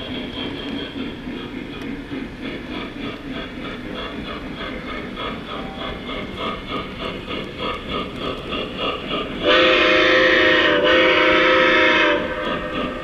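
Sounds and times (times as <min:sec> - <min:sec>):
toy steam locomotive chuffing: 0:00.0 - 0:13.0
steam whistle blasts: 0:09.4 - 0:12.8.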